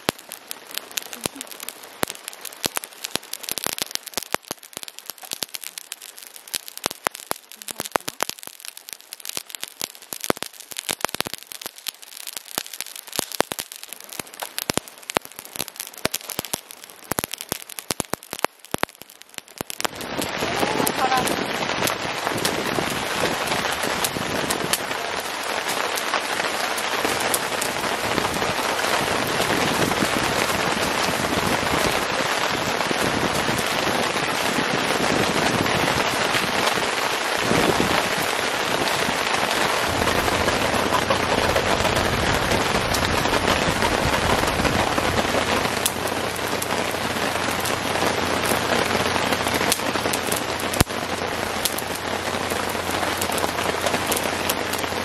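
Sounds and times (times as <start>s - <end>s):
heavy rain falling: 0.0s - 55.0s
wind blowing: 19.7s - 55.0s
low rumble: 38.8s - 55.0s.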